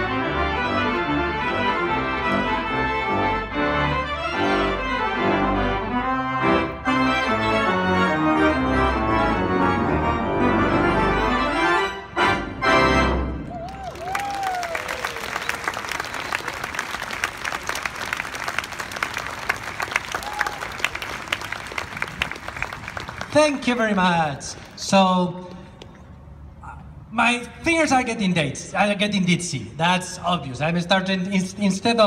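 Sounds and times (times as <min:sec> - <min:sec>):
pipe organ chords: 0:00.0 - 0:13.5
person whooping: 0:13.5 - 0:15.4, 0:20.2 - 0:20.8
audience applauding: 0:13.5 - 0:24.8.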